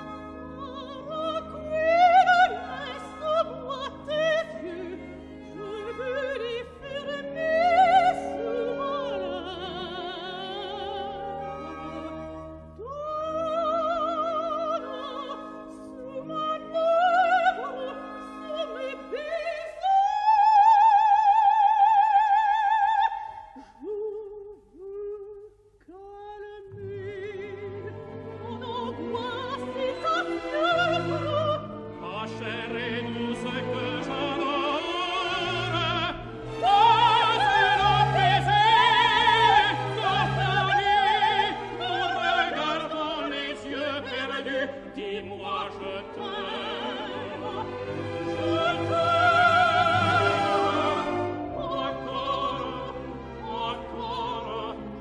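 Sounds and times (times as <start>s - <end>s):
operatic singing: 0.0s - 55.0s
orchestra playing: 45.8s - 55.0s.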